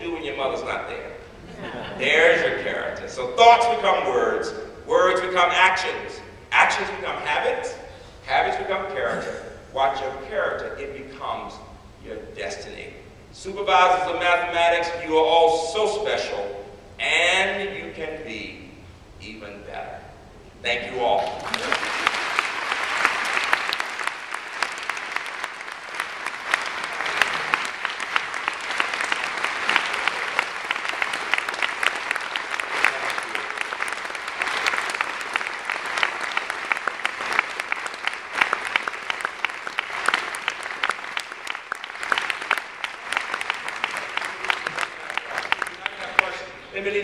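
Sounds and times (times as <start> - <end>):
audience applauding: 21.2 - 46.6.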